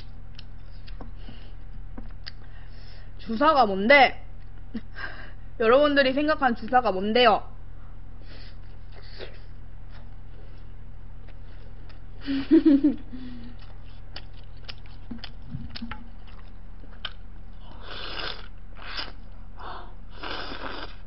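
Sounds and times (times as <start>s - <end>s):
steady low hum: 0.0s - 21.0s
chewing with clicks: 13.6s - 17.2s
slurping noodles: 17.7s - 19.2s, 20.1s - 21.0s.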